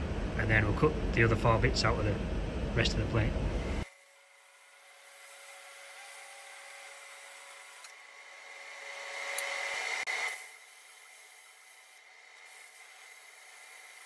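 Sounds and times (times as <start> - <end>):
plasma cutter hissing whine: 9.4 - 14.0.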